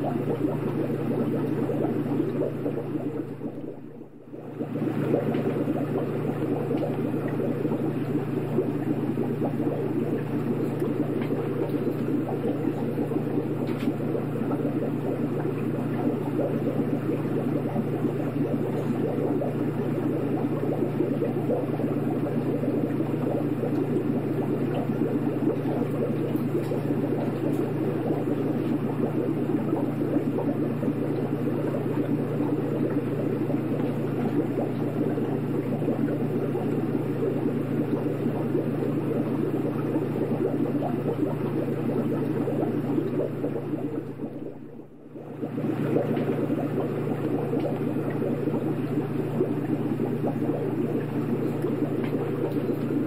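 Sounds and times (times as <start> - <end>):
aquarium filter humming: 0.0 - 53.0
water bubbling and churning: 0.0 - 53.0.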